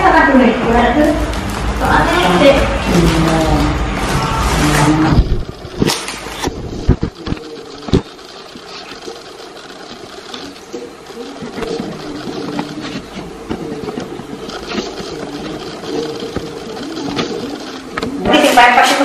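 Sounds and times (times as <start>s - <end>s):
person speaking: 6.4s - 19.0s.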